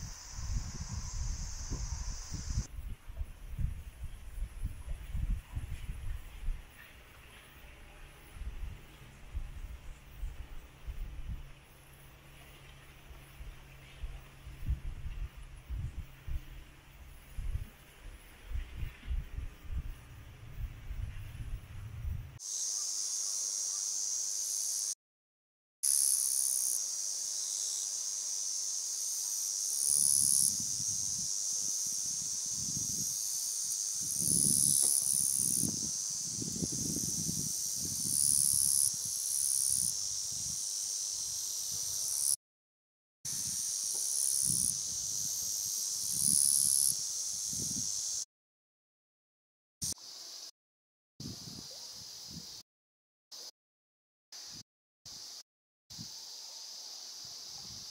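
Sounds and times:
insects buzzing: 0.0 - 2.7, 22.4 - 25.0, 25.8 - 42.4, 43.3 - 48.3, 49.8 - 50.5, 54.4 - 57.9
wind rumbling on microphone: 0.0 - 7.0, 8.3 - 11.5, 13.4 - 22.4, 30.2 - 33.2, 34.0 - 39.2, 51.2 - 52.5.

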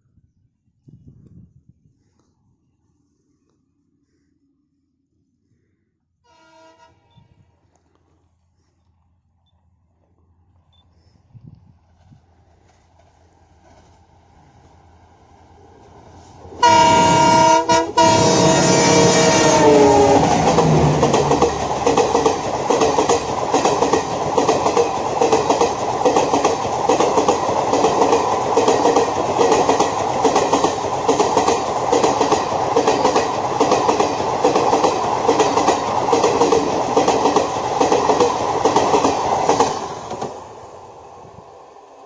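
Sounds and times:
train rumbling past: 11.6 - 42.0
wheels clacking over rail joints: 16.6 - 40.4.

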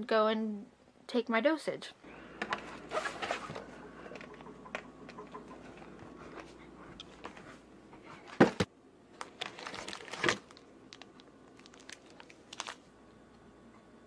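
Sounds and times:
rummaging in cardboard box: 2.8 - 3.7, 9.4 - 10.6
plastic wrapper crinkling: 9.2 - 12.9.

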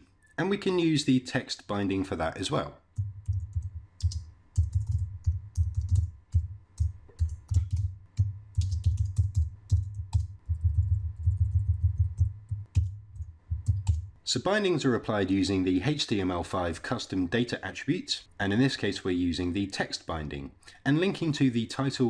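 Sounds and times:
typing on computer keyboard: 3.0 - 14.0.

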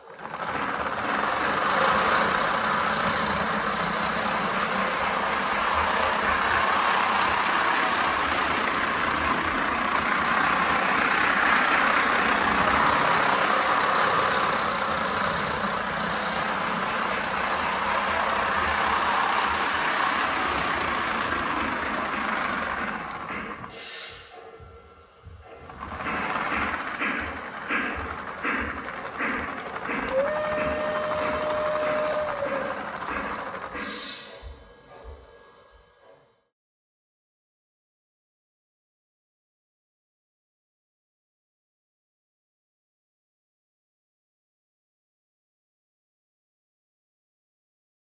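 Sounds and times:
model train running on track: 0.0 - 36.4.

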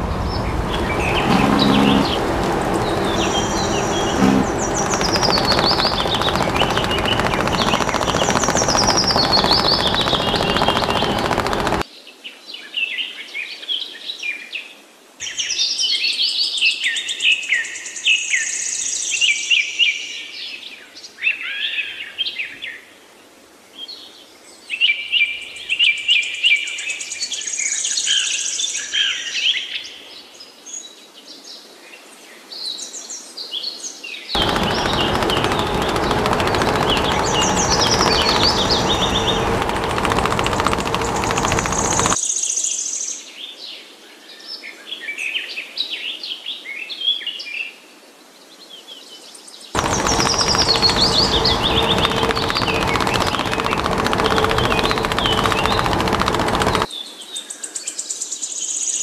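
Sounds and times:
songbirds chirping and trilling: 0.0 - 11.8, 34.4 - 42.2, 49.8 - 56.9.

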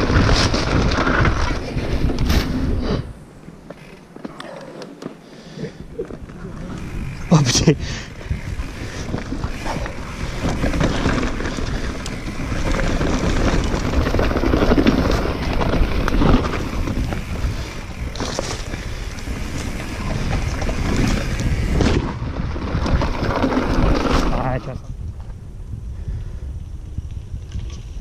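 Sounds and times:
tyres rumbling on dirt: 0.0 - 24.8
wind buffeting microphone: 5.7 - 28.0
bike knocks and rattles: 8.2 - 25.4.

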